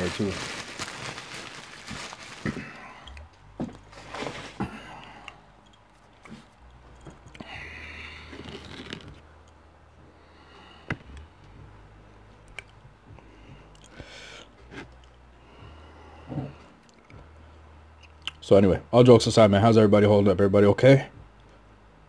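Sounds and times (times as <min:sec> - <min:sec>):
plastic cups moved on table: 0:01.9 - 0:04.8.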